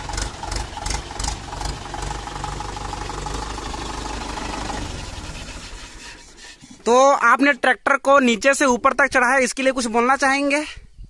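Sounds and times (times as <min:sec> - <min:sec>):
diesel tractor engine clattering: 0:00.0 - 0:07.0.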